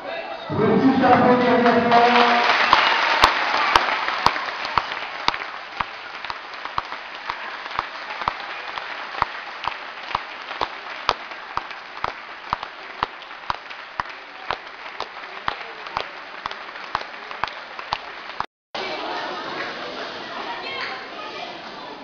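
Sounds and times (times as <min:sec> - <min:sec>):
crowd applauding: 0:00.6 - 0:19.0
rhythmic clapping in time: 0:01.2 - 0:18.5.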